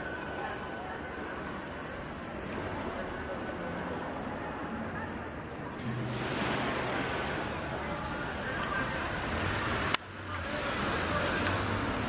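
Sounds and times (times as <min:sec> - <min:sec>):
distant voices: 0:00.0 - 0:12.0
steady wash of noise: 0:00.0 - 0:12.0.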